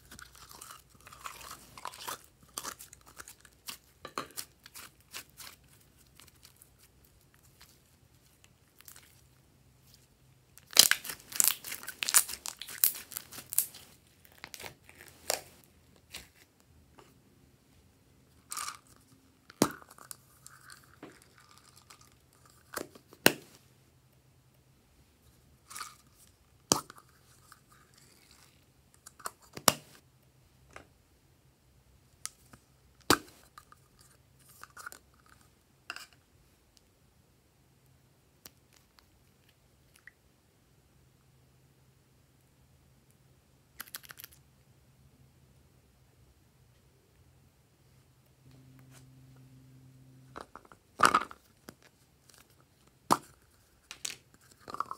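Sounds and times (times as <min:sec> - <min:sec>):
slime crackling and tearing: 0:10.6 - 0:15.5.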